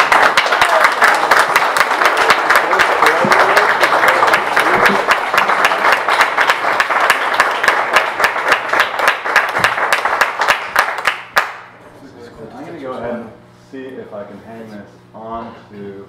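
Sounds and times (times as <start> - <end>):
audience applauding: 0.0 - 11.7.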